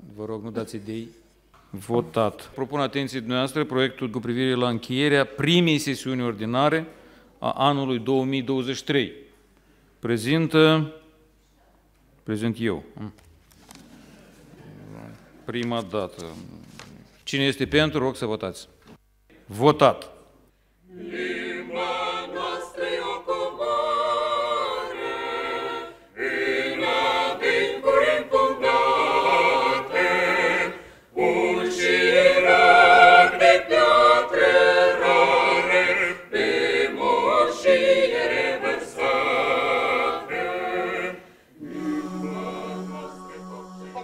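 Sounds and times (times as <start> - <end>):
mixed choir singing: 20.9 - 44.0.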